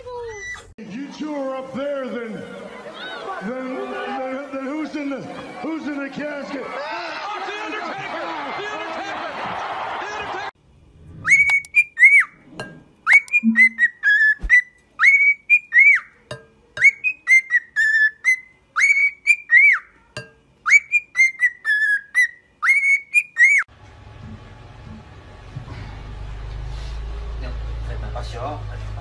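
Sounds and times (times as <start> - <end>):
cockatiel whistling: 11.2 - 12.4, 13.0 - 16.1, 16.8 - 19.9, 20.6 - 23.7.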